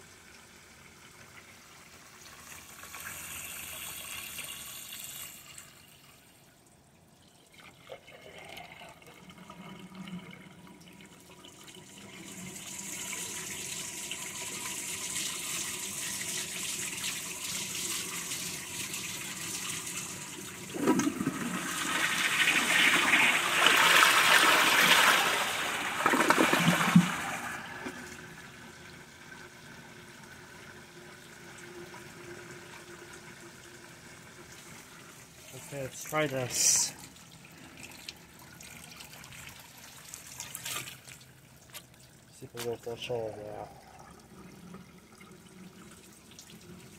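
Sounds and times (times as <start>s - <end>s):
toilet flushing: 0.0s - 6.5s, 7.2s - 41.2s, 42.8s - 46.9s
running water hiss: 2.3s - 5.9s, 35.4s - 37.2s.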